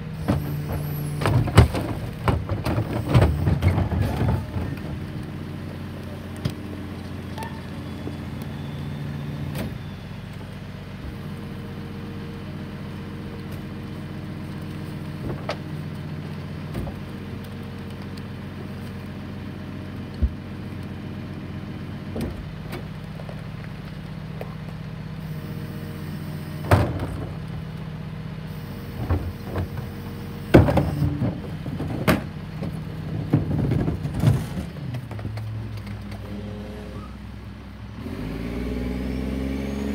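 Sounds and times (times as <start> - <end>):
trash carts clanking and thumping: 0.0 - 11.3, 12.8 - 17.9, 26.5 - 27.8, 28.6 - 37.5
garbage truck engine idling: 0.0 - 38.0.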